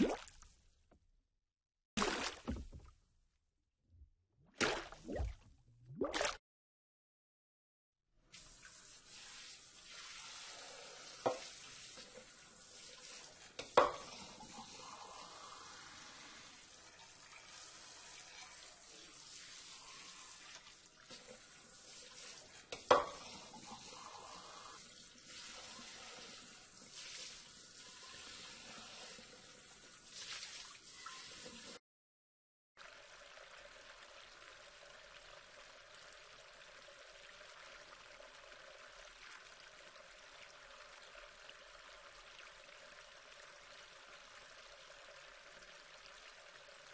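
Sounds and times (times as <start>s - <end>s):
water spray hissing over dishes: 8.3s - 31.8s.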